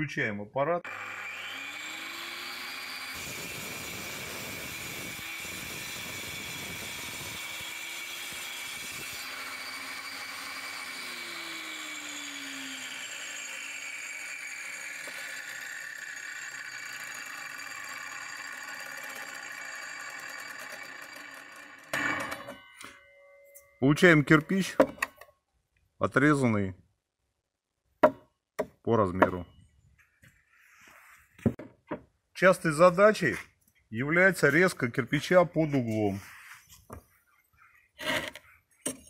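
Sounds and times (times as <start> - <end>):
grinder disc spinning down: 0.8 - 23.2
angle grinder whining: 0.8 - 23.6.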